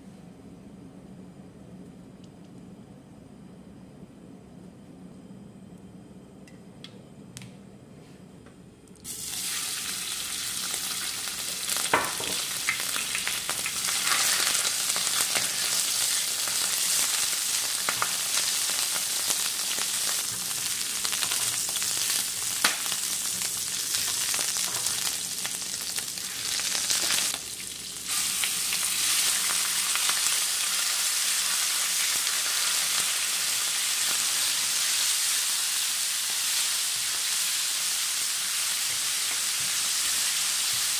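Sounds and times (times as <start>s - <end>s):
food sizzling in a wok: 9.1s - 40.9s.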